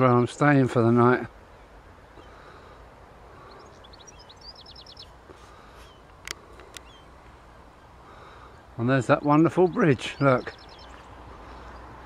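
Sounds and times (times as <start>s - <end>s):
songbirds singing: 0.0s - 12.0s
sharp clicks: 6.1s - 6.9s.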